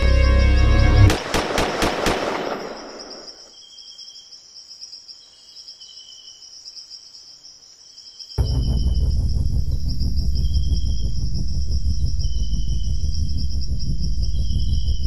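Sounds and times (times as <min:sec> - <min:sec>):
music: 0:00.0 - 0:01.3, 0:08.4 - 0:15.0
crickets chirping: 0:00.0 - 0:15.0
gunshots echoing: 0:01.1 - 0:03.5.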